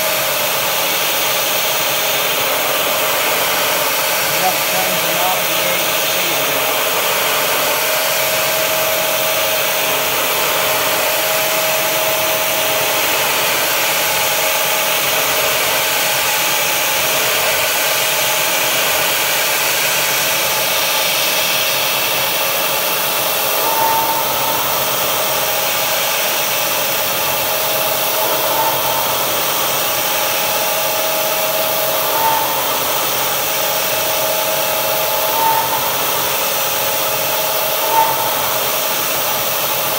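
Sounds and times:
mist coolant sprayer hissing: 0.0s - 11.0s
milling machine cutting tone: 0.0s - 17.6s, 18.8s - 39.9s.

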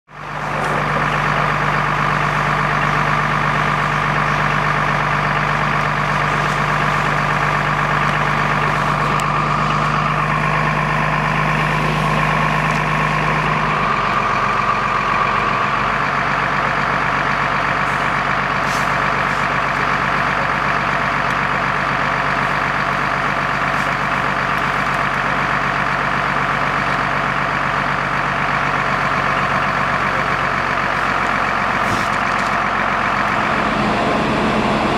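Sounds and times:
diesel engine droning: 0.1s - 34.9s.

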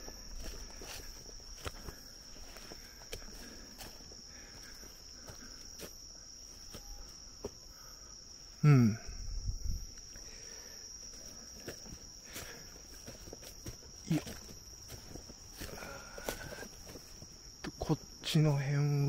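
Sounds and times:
insects chirring: 0.0s - 19.0s
man grunting: 8.6s - 9.2s.

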